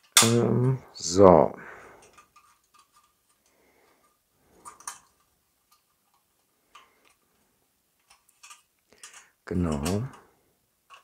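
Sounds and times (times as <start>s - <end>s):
sheet metal parts clicking: 0.0s - 0.4s, 2.0s - 7.2s, 8.0s - 11.0s.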